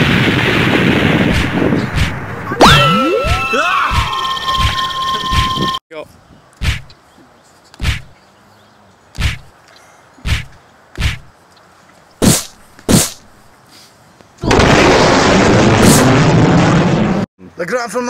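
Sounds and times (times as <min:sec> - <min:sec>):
short whacks of blows: 0:01.3 - 0:02.8, 0:06.6 - 0:06.9, 0:07.8 - 0:08.1, 0:09.2 - 0:09.5, 0:10.2 - 0:11.3, 0:12.2 - 0:13.3.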